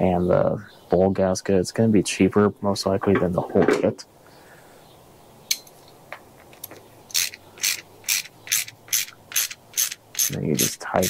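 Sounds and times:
hand ratchet clicking: 7.1 - 10.8.

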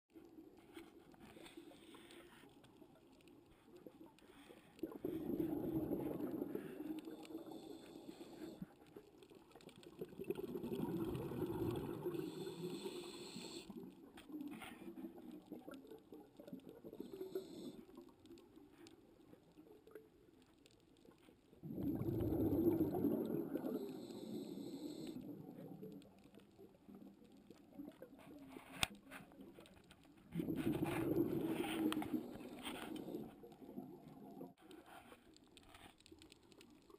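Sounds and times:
faint hiss: 0.6 - 9.6, 11.6 - 15.8, 22.6 - 36.9
underwater regulator bubbles: 3.6 - 8.8, 9.8 - 17.9, 21.6 - 34.6.

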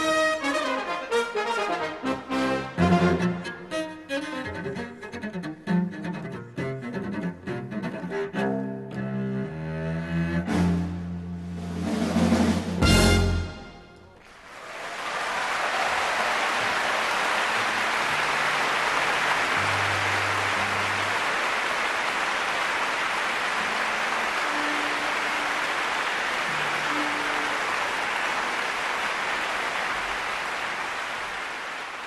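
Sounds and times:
audience applauding: 14.2 - 32.0.

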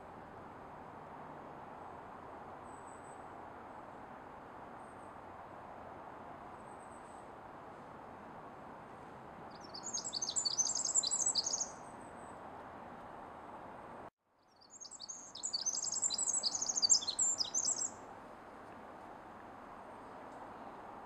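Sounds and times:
wren singing rapid trills: 9.5 - 11.8, 14.5 - 18.0.

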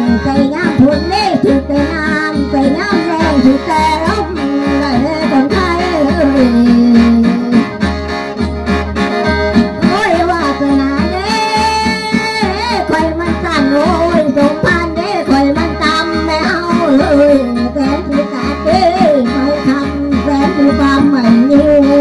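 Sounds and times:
person singing: 0.0 - 7.9, 9.8 - 22.0
mouth organ playing over drone: 0.0 - 22.0
steady low beat: 3.2 - 12.1.

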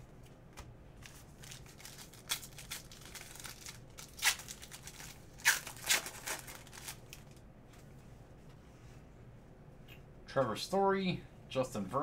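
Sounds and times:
foil wrapper tearing: 1.0 - 7.4.

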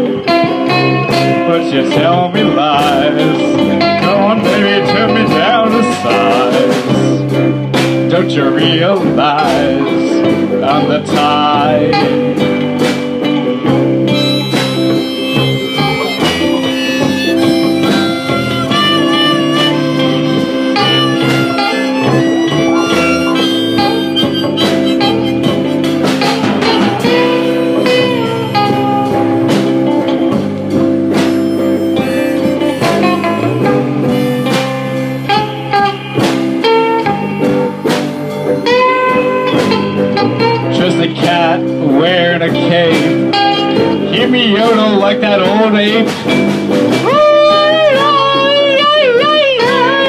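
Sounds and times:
drums: 0.0 - 50.0
guitar: 0.0 - 50.0
harmonica: 14.0 - 30.1, 30.8 - 40.7.

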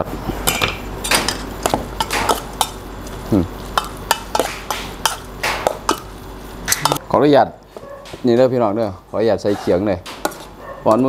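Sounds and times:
spoon stirring wet meat: 1.2 - 7.0, 7.6 - 11.0.

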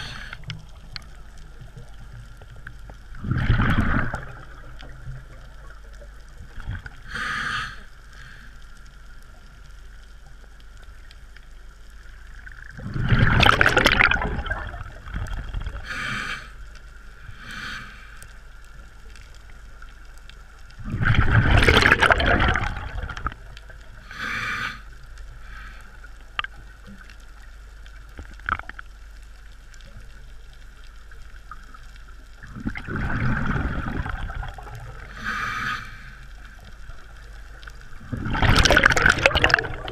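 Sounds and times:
faint steady hum: 0.0 - 39.9
scuba regulator exhaled bubbles: 3.2 - 5.8, 12.7 - 16.3, 20.8 - 23.5, 32.4 - 35.7, 38.0 - 39.9.

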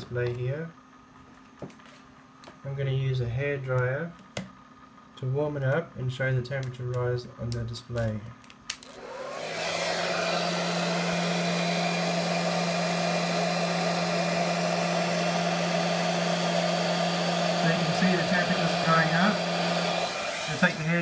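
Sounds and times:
hair dryer blowing: 8.8 - 21.0.

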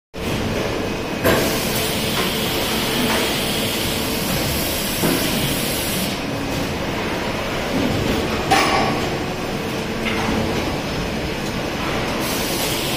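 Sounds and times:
injection moulding machine running: 0.2 - 12.9.

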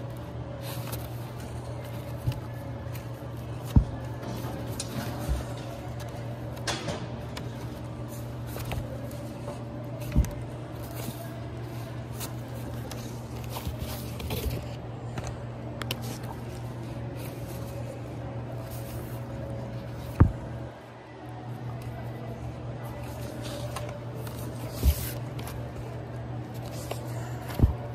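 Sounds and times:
steady low hum: 0.0 - 27.9
record jackets knocking and sliding: 0.9 - 11.2, 20.0 - 20.6, 26.5 - 27.9.

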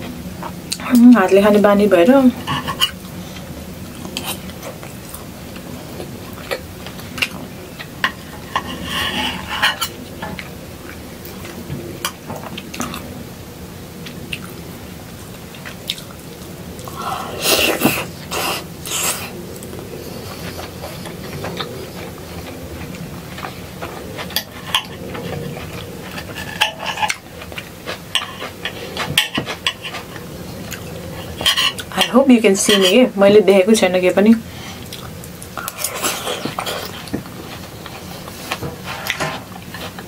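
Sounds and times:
close-up chewing: 2.6 - 13.2, 14.0 - 32.0, 34.4 - 40.0
knife and fork scraping on a plate: 8.1 - 10.0, 23.4 - 27.6, 31.2 - 33.0.

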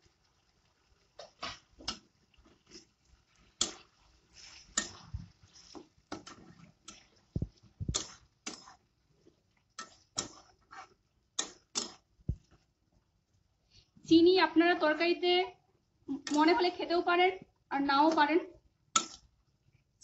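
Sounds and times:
metal spatula scraping pan: 1.2 - 7.3, 7.9 - 8.9, 9.8 - 12.0.

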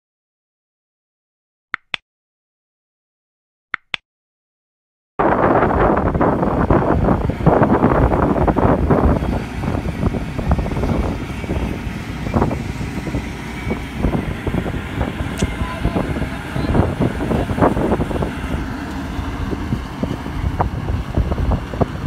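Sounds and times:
combine harvester rumble: 5.2 - 22.0
wind buffeting microphone: 5.2 - 22.0.

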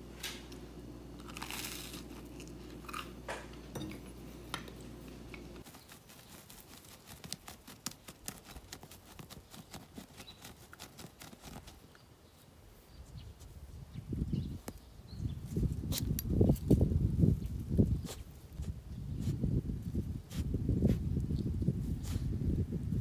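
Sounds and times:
low indoor hum: 0.0 - 5.8
dog digging in dry soil: 5.6 - 12.0.

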